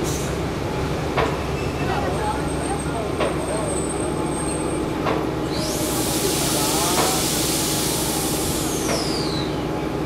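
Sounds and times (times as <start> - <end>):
train rumble inside carriage: 0.0 - 10.0
train wheels knocking: 1.1 - 1.4, 3.0 - 3.7, 6.8 - 7.2
loud hiss: 5.5 - 9.5.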